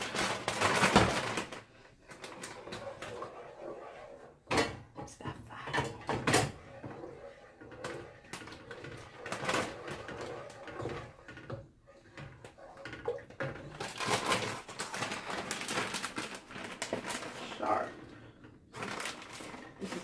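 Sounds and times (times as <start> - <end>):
plastic bag crinkling: 0.0 - 2.6, 13.6 - 18.0, 18.7 - 20.0
wooden spoon scraping a pot: 1.6 - 20.0.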